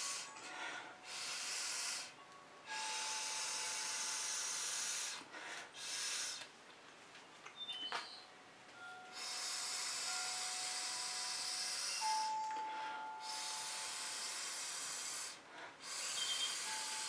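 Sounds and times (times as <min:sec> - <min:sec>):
blowing through a straw: 0:01.1 - 0:05.2, 0:05.8 - 0:06.4, 0:09.2 - 0:17.0.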